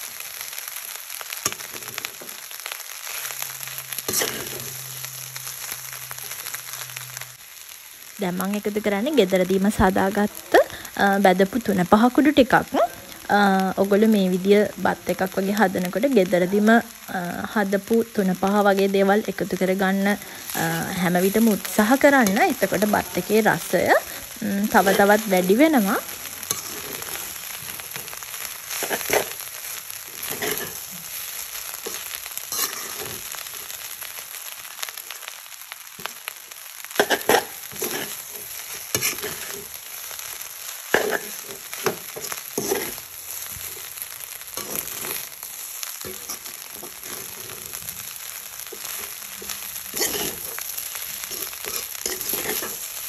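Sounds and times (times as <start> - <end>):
rice sizzling in a pan: 0.0 - 53.0
metal spoon scraping a pan: 4.1 - 4.8, 21.4 - 29.4, 30.2 - 30.9, 31.8 - 33.3, 37.0 - 39.7, 40.9 - 43.1, 44.6 - 45.3, 48.7 - 52.8.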